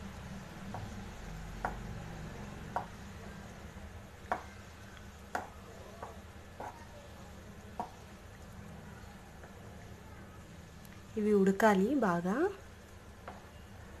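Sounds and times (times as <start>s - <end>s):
wooden spatula knocking on pan: 1.6s - 1.9s, 2.7s - 3.0s, 4.2s - 4.6s, 5.3s - 6.9s, 7.8s - 8.1s, 13.2s - 13.5s.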